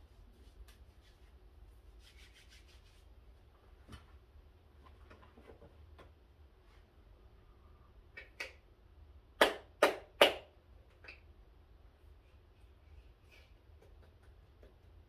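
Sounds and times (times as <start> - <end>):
soft handling and rubbing: 0.0 - 7.6.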